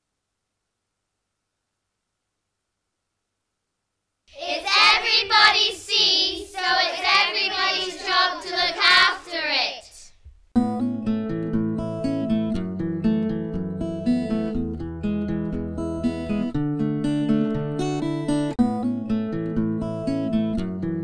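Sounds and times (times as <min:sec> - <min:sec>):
children singing: 0:04.3 - 0:10.1
strummed acoustic guitar: 0:10.6 - 0:21.0.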